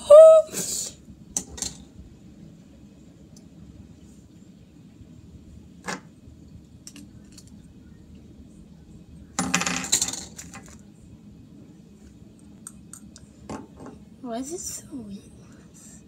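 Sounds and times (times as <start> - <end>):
rattling clatter of pieces: 9.4 - 10.8.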